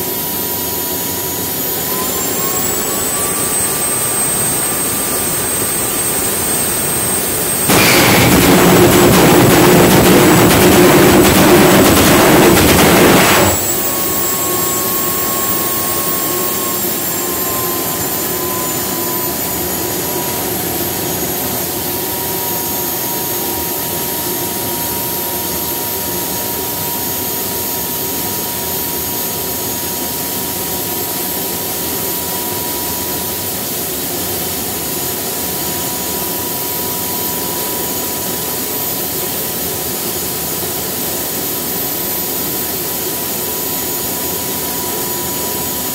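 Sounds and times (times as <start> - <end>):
jet engine afterburner roar: 0.0 - 26.9
turbine idling whine: 0.0 - 45.9.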